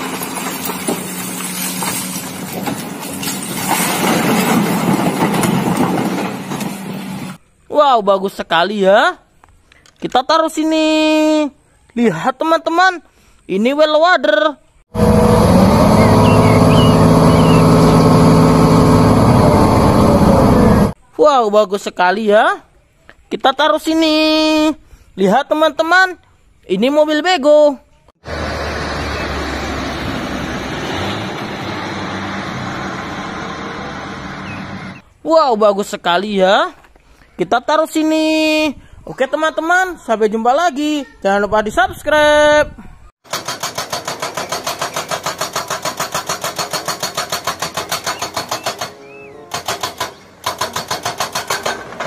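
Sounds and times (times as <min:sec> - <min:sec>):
tyre and road noise: 0:00.0 - 0:07.4, 0:14.9 - 0:21.0, 0:28.2 - 0:35.1, 0:43.2 - 0:52.0
truck engine droning: 0:14.9 - 0:21.0, 0:28.2 - 0:35.0
hydraulic breaker hammering rock: 0:43.2 - 0:52.0.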